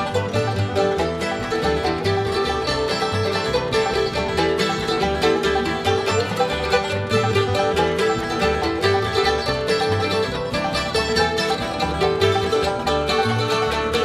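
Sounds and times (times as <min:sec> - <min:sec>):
acoustic guitar: 0:00.0 - 0:14.0
banjo: 0:00.0 - 0:14.0
fiddle: 0:00.0 - 0:14.0
mandolin: 0:00.0 - 0:14.0
upright bass plucking: 0:00.0 - 0:14.0.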